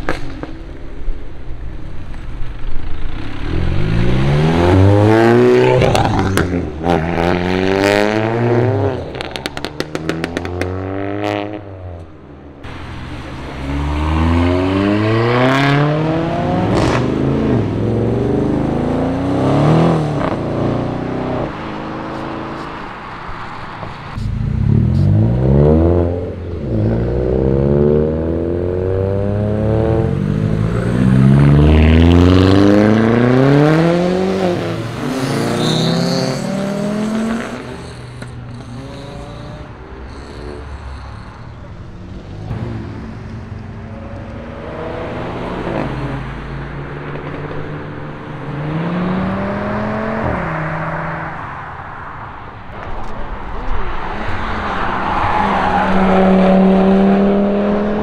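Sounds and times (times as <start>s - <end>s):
car engines accelerating hard: 3.0s - 12.0s, 12.6s - 58.0s.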